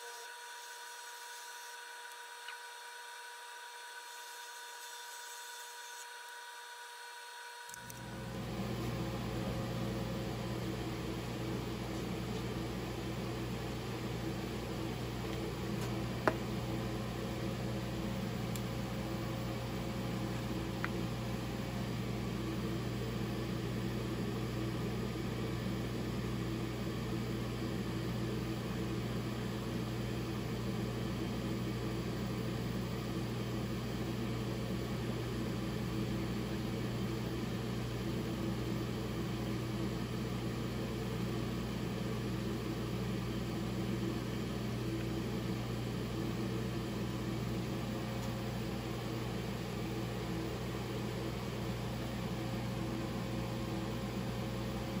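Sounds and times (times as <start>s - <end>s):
shop machinery humming: 0.0s - 55.0s.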